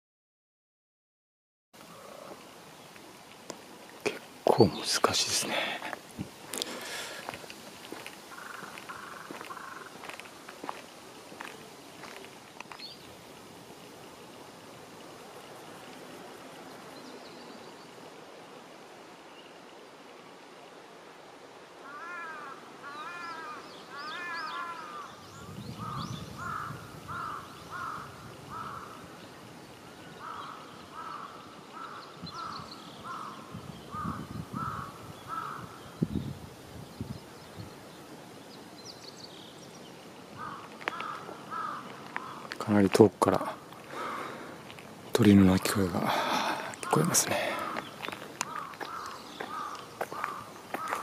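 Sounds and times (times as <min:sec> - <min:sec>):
distant crow cawing: 0:06.7 - 0:10.8, 0:21.8 - 0:29.2, 0:30.2 - 0:35.9, 0:40.4 - 0:42.6, 0:43.6 - 0:44.8, 0:46.0 - 0:51.0.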